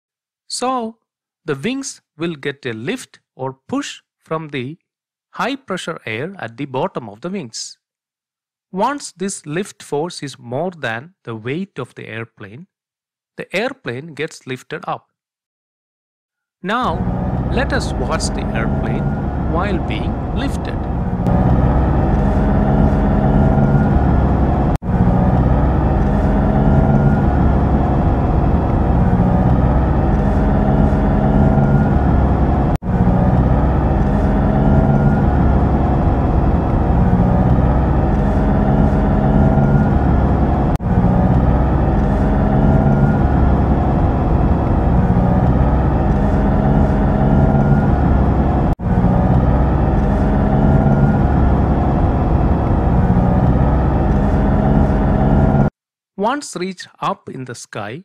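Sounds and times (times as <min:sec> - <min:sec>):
propeller engine drone: 0:16.8 - 0:55.7
rising tone: 0:16.8 - 0:55.7.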